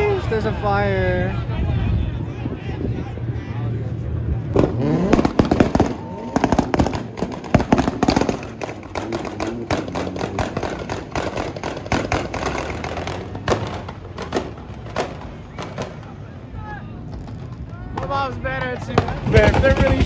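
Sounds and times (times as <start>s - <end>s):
car engine running: 4.0s - 16.2s
engine pops and bangs: 4.6s - 16.1s, 17.1s - 20.0s.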